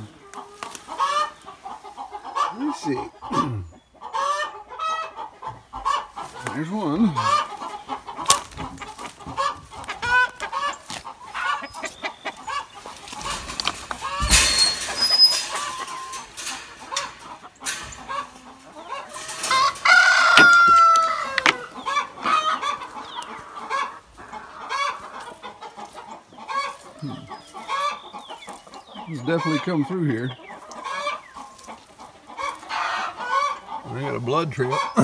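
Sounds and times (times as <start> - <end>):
chickens clucking: 0.0 - 35.0
rustling: 12.8 - 22.3
rooster crowing: 19.3 - 21.8.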